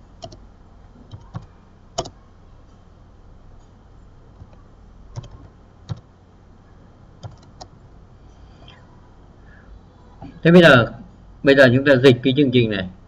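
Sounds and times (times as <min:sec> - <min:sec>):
low steady hum: 0:00.0 - 0:13.0
keyboard keystrokes: 0:00.2 - 0:00.4, 0:01.1 - 0:02.2, 0:04.4 - 0:06.1, 0:07.2 - 0:07.7.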